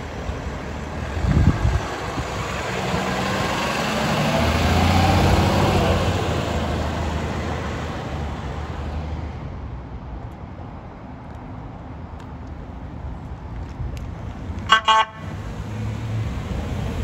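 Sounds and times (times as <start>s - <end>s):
background traffic: 0.0s - 17.0s
truck engine driving past: 0.1s - 9.0s.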